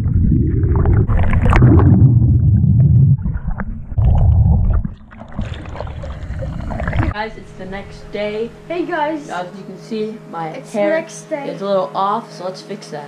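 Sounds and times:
hot tub water churning: 0.0 - 3.4, 4.3 - 7.9
water splashes and knocks: 4.7 - 7.2.

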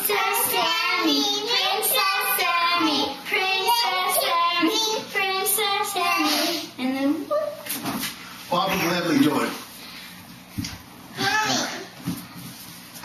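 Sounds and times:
girl singing in a high voice: 0.0 - 6.8.

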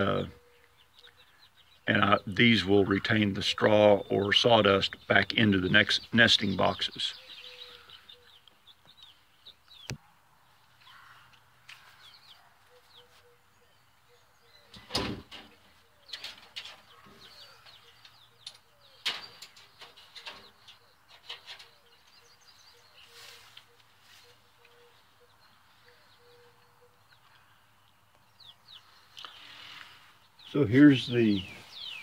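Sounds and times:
small birds chirping: 0.0 - 32.0
straw rustling: 22.8 - 25.0.

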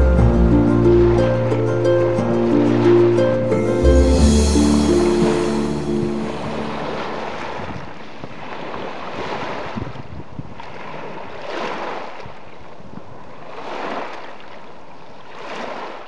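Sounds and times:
wind on microphone: 2.2 - 14.1
waves breaking on pebble shore: 6.1 - 12.6, 13.2 - 16.0.

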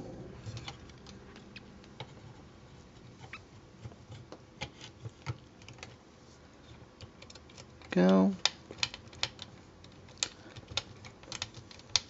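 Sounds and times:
plastic parts clicking: 7.0 - 12.0.

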